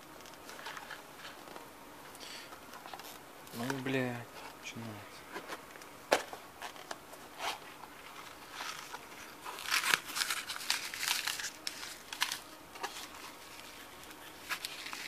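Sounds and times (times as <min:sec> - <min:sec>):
paper and sachet crinkling: 0:06.6 - 0:15.0.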